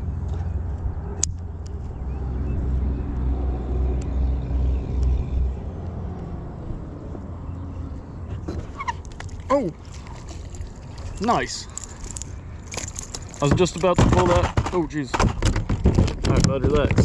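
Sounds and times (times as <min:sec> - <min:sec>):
wind buffeting microphone: 0:09.4 - 0:17.0.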